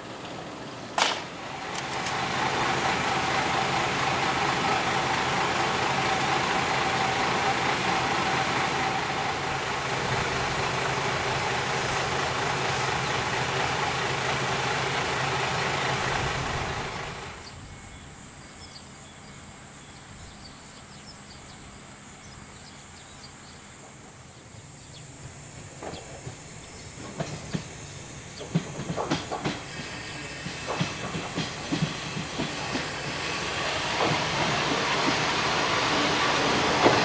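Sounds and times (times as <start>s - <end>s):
large engine running: 0.0s - 17.7s, 27.8s - 37.0s
steady high whine: 0.0s - 37.0s.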